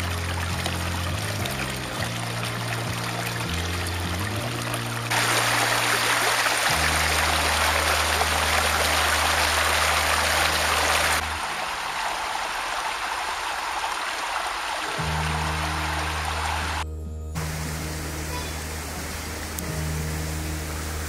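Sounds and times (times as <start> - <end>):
stream water rushing over rocks: 0.0 - 16.8, 17.4 - 21.0.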